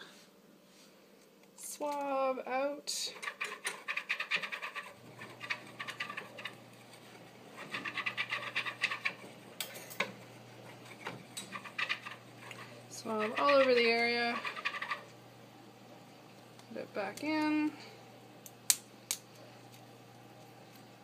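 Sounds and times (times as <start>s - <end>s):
swab scrubbing wire cage: 3.1s - 9.4s, 10.2s - 15.1s.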